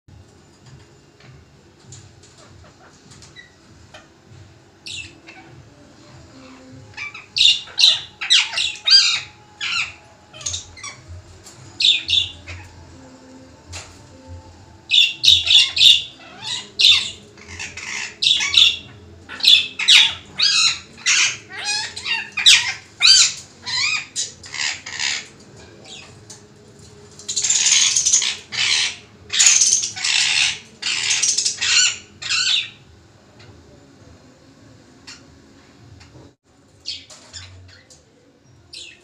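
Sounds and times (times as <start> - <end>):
parakeet squawking harshly: 14.9 - 25.3, 27.4 - 32.8.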